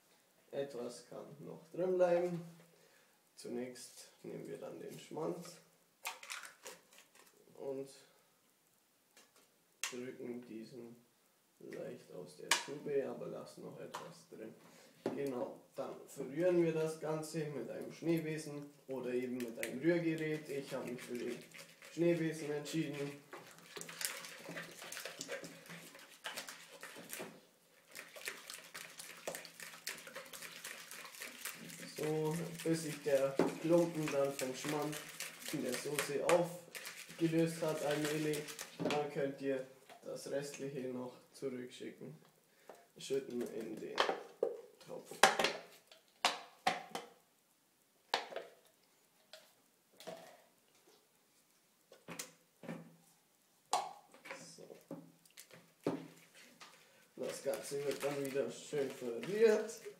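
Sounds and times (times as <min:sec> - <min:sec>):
whisk scraping plastic bowl: 0:19.3 - 0:39.1, 0:56.0 - 0:59.9
plastic knocks and clacks: 0:43.4 - 0:47.2.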